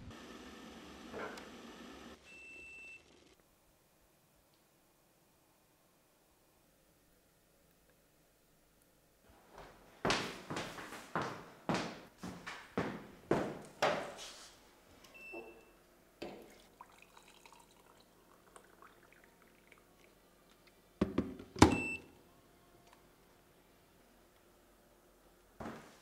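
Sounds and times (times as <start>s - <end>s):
water poured into a mug: 16.4s - 20.7s.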